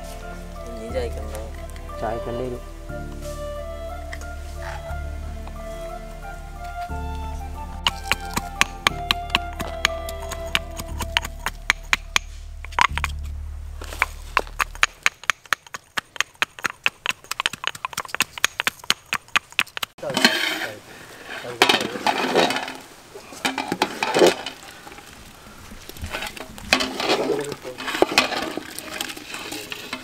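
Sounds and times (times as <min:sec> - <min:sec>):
music: 0:00.0 - 0:14.6
ladle stirring in a pot: 0:26.0 - 0:30.0
pot lid clattering: 0:26.3 - 0:30.0.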